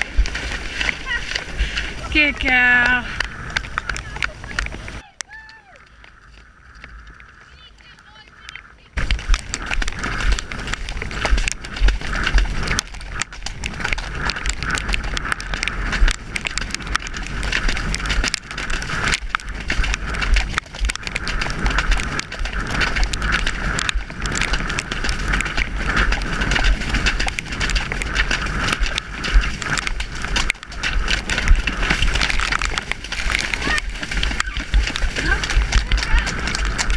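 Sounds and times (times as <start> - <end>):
horse hoofbeats: 0.0 - 36.9
wind rumble on microphone: 0.0 - 36.9
splashes through mud: 9.0 - 36.9.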